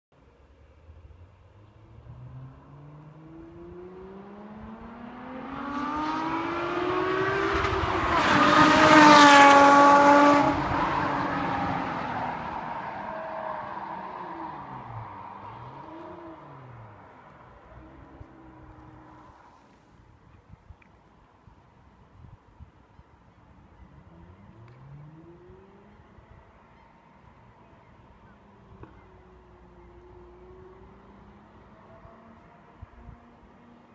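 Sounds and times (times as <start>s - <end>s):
sports car engine accelerating: 1.0s - 19.4s, 24.0s - 26.5s.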